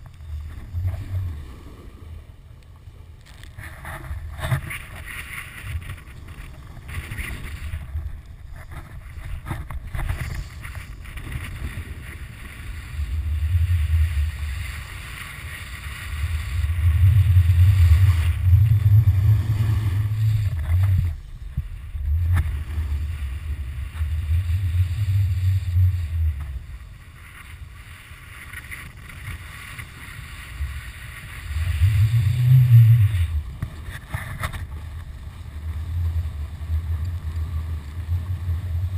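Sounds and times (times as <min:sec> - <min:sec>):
snowboard sliding on snow: 0:03.5 - 0:38.9
wind buffeting microphone: 0:16.1 - 0:27.1.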